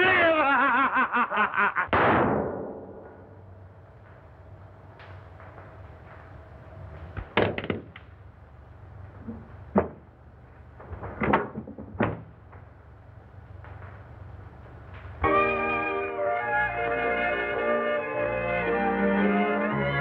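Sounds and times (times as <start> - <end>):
film soundtrack hiss: 0.0 - 11.3, 12.1 - 20.0
sharp crack: 1.8 - 15.7
knocks and thuds of a struggle: 10.9 - 12.3.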